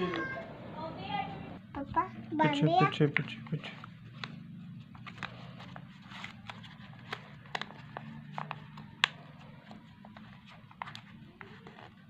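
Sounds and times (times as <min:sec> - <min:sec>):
paper crinkling: 0:03.6 - 0:12.0.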